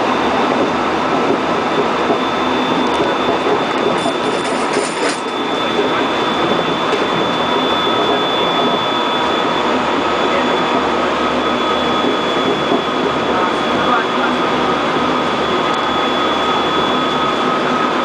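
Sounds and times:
train wheels rumbling on rail: 0.0s - 18.0s
thin high tone: 2.3s - 12.5s.

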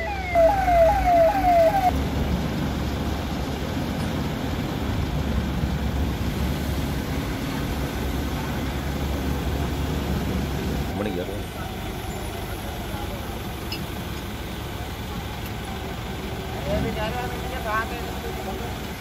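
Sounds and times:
police siren yelping: 0.0s - 2.0s
truck engine idling: 0.0s - 19.0s.

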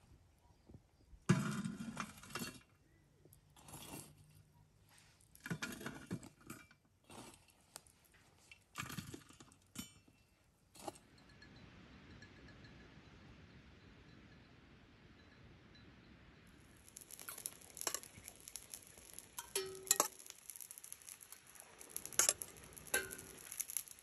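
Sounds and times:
faint steady hiss: 0.0s - 24.0s
small hard objects clinking: 16.6s - 24.0s.

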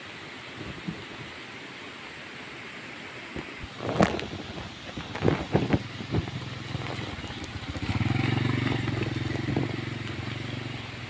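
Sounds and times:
motorcycle passing by: 5.3s - 11.0s.

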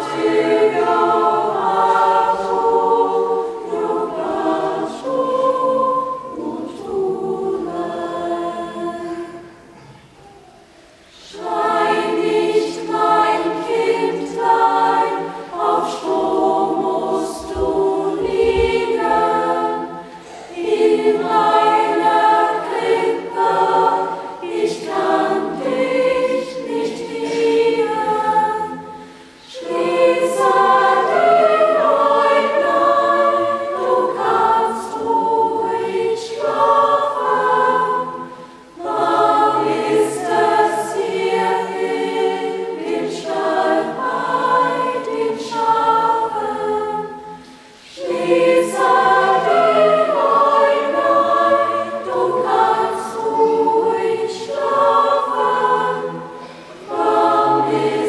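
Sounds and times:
youth choir singing: 0.0s - 58.0s.

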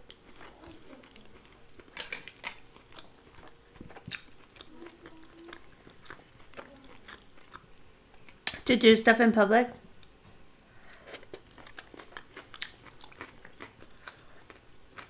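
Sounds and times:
person chewing with crunches: 0.0s - 8.5s, 10.0s - 15.0s.

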